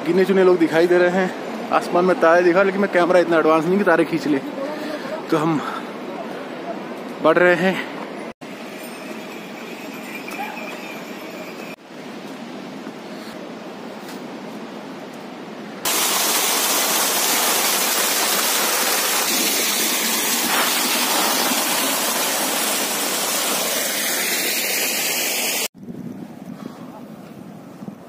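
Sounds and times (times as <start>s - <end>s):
fast-flowing water rushing: 15.9s - 25.7s.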